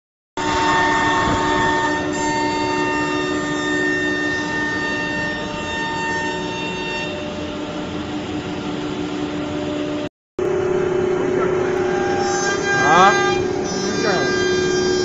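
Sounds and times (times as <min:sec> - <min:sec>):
wood router spindle whine: 0:00.4 - 0:09.7, 0:10.4 - 0:15.0
machine noise: 0:00.4 - 0:15.0.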